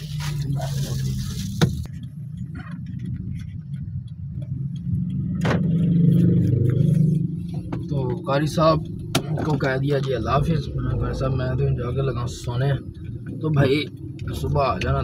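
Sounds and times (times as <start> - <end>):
plastic bag rustling: 0.0 - 1.9
car engine running: 0.0 - 15.0.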